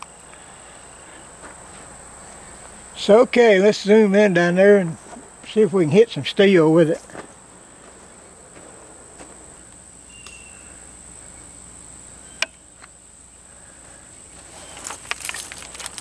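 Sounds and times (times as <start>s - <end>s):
insects shrilling: 0.0s - 16.0s
crackling rustles: 13.7s - 16.0s.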